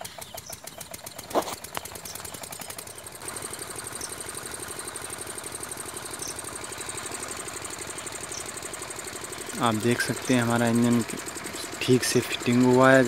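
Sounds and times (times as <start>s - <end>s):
diesel engine knocking: 0.0s - 13.0s.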